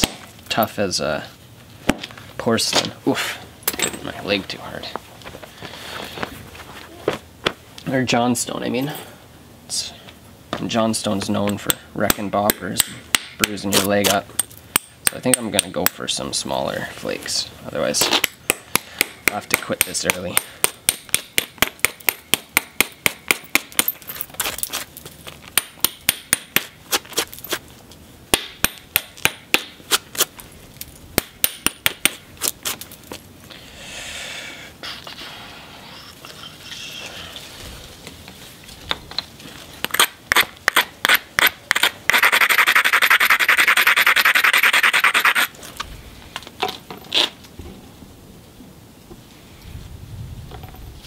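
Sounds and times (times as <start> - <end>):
gritty scraping of stone: 23.8 - 25.6, 39.4 - 45.9.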